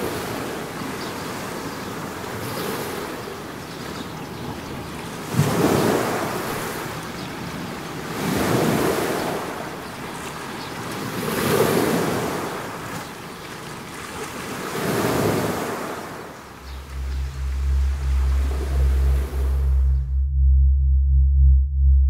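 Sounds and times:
rushing noise: 0:16.6 - 0:22.0.

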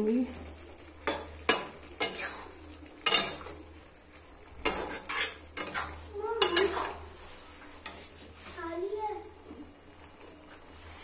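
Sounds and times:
spoon knocking and scraping pan: 0:01.0 - 0:03.7, 0:04.6 - 0:08.6.

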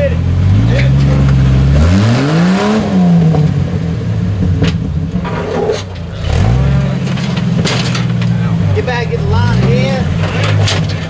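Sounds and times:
engine revving and running rough: 0:00.0 - 0:11.0
tyres and chassis scraping on rock: 0:04.6 - 0:11.0.

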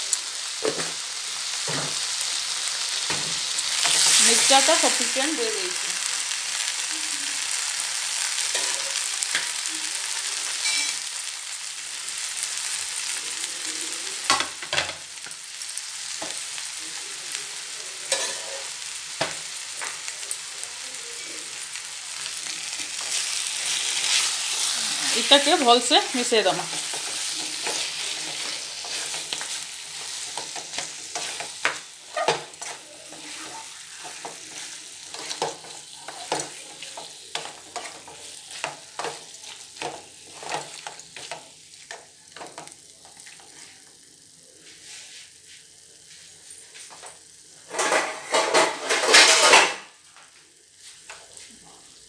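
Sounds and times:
light sizzle: 0:00.0 - 0:52.0
wooden spatula scraping a pan: 0:23.0 - 0:41.4.

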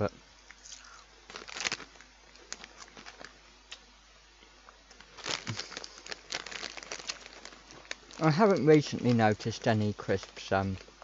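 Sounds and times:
crisp packet crinkling: 0:00.6 - 0:03.4, 0:04.9 - 0:10.9.

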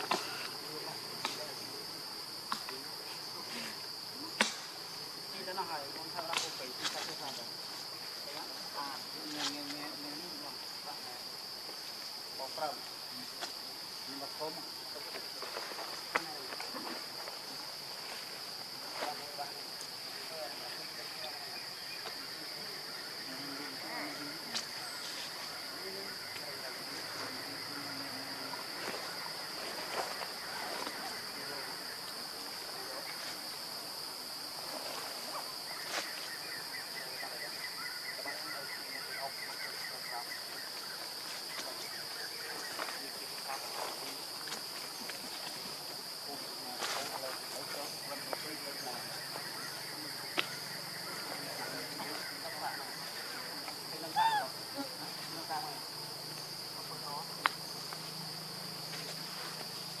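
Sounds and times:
insects droning: 0:00.0 - 1:00.0
animal call rising and falling: 0:54.1 - 0:54.6.

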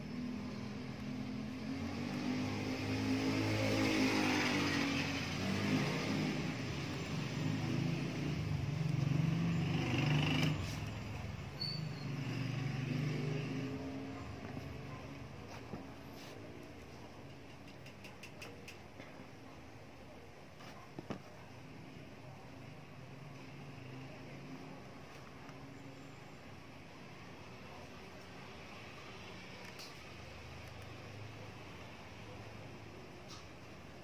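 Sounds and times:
vehicle engine humming: 0:00.0 - 0:18.6.

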